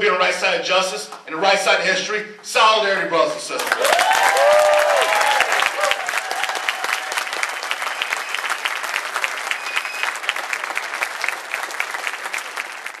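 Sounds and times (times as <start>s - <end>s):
audience applauding: 3.6s - 13.0s.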